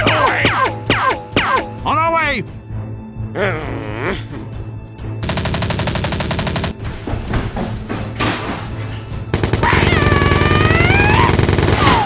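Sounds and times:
rapid automatic gunfire: 0:05.2 - 0:06.8, 0:09.3 - 0:12.0.

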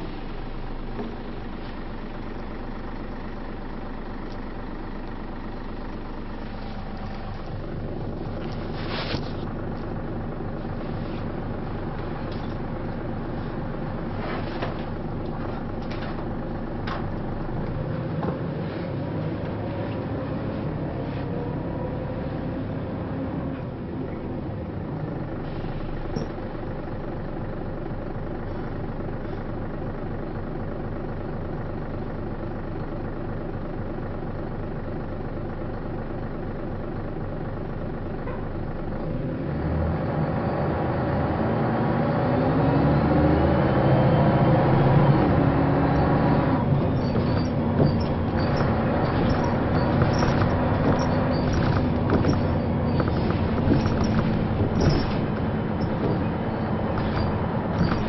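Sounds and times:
bus diesel engine: 0:00.0 - 0:58.0.

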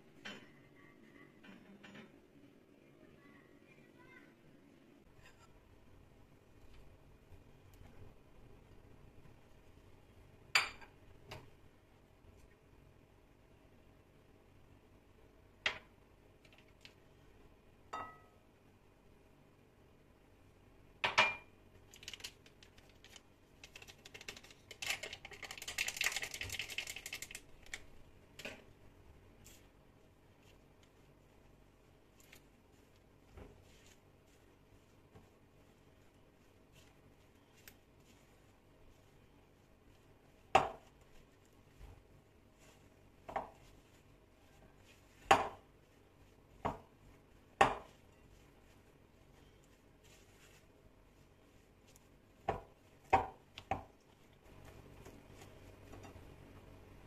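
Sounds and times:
glass clink: 0:17.9 - 0:18.4
mixing margarine and sugar: 0:21.7 - 0:27.9, 0:29.4 - 0:56.5
paper sachet crinkling: 0:21.8 - 0:27.9.

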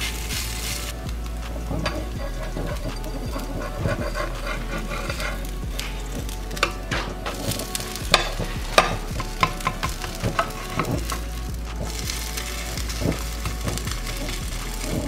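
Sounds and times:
metal spatula scraping a pan: 0:00.0 - 0:15.0
pancakes sizzling on a griddle: 0:00.0 - 0:15.0.

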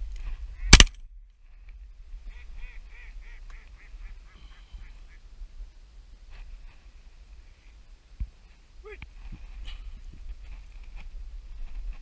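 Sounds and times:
duck quacks: 0:02.3 - 0:05.2.

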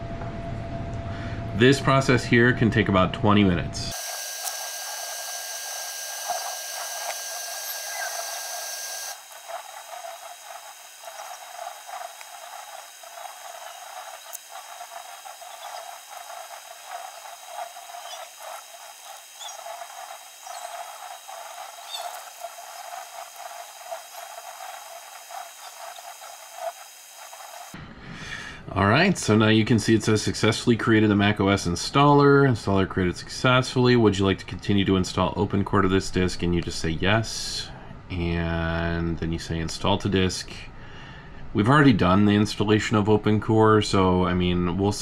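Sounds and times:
faint high steady tones: 0:03.9 - 0:27.8.

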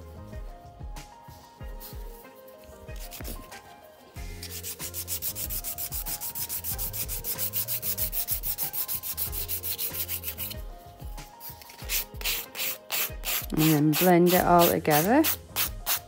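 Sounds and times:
nail file scraping a nail: 0:01.9 - 0:03.6, 0:04.3 - 0:10.6, 0:11.4 - 0:16.0.

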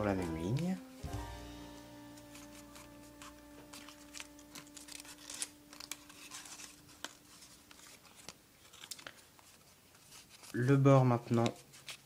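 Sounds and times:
held background music note: 0:00.0 - 0:06.6
paper rustling and crinkling: 0:02.2 - 0:12.0.

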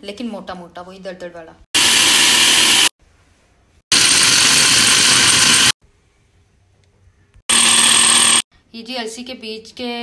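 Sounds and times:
food processor chopping nuts: 0:01.8 - 0:02.9, 0:03.9 - 0:05.8, 0:07.5 - 0:08.4.

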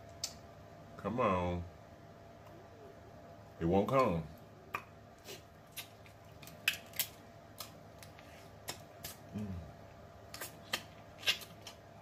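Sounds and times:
crab shell cracking: 0:05.7 - 0:09.2.

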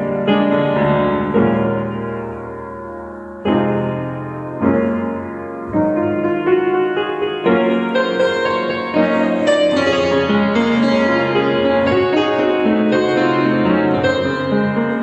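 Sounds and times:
digital piano playing hymn: 0:00.0 - 0:15.0.

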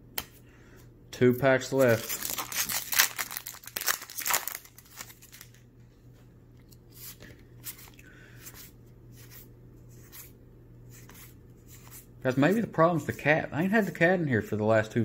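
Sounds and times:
faint steady hum: 0:00.0 - 0:15.0
card packaging crinkle: 0:01.7 - 0:05.6
cards rustling and sliding: 0:01.8 - 0:05.5.

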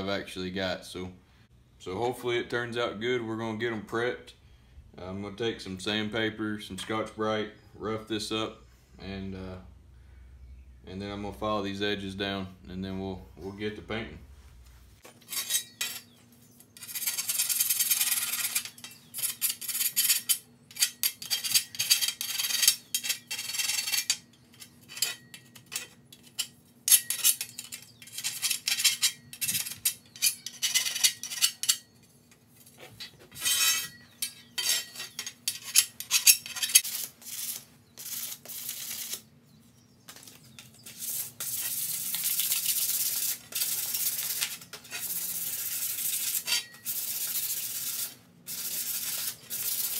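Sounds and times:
hand file scraping metal: 0:15.2 - 0:16.2, 0:16.8 - 0:31.9, 0:33.0 - 0:39.2, 0:40.8 - 0:49.9.

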